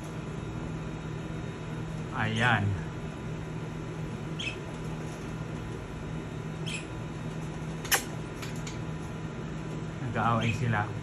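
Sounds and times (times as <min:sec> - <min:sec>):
low steady hum: 0:00.0 - 0:11.0
budgerigars chirping: 0:04.4 - 0:04.6, 0:06.6 - 0:06.9
sharp click: 0:07.8 - 0:08.8.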